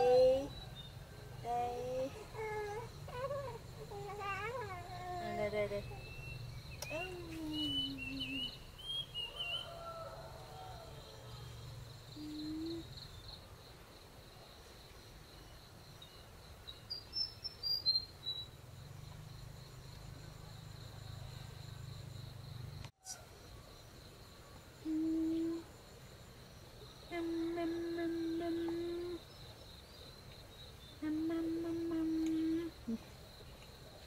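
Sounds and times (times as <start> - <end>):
high-pitched insect trill: 0.0 - 14.0, 14.6 - 33.8
bird chirps: 5.7 - 10.1.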